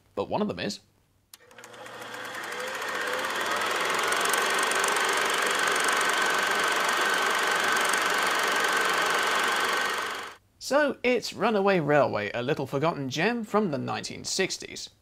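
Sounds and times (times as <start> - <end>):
film projector whirring and clattering: 1.4 - 10.4.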